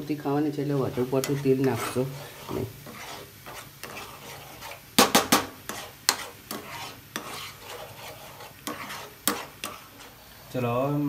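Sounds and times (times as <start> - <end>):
spoon scraping thick puree: 0.9 - 5.0, 5.6 - 10.5
spoon knocking against pan: 5.0 - 7.4.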